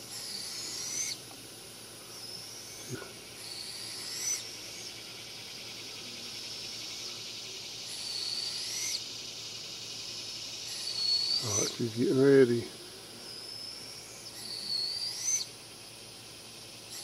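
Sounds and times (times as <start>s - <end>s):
steady high hiss: 0.0s - 17.0s
bird whistled call: 0.1s - 1.2s, 2.1s - 5.0s, 7.8s - 9.0s, 10.6s - 11.8s, 13.2s - 15.6s.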